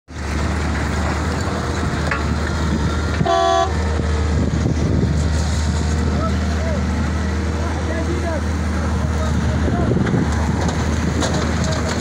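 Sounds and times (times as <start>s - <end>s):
excavator diesel engine humming: 0.1s - 12.0s
vehicle horn toot: 3.2s - 3.8s.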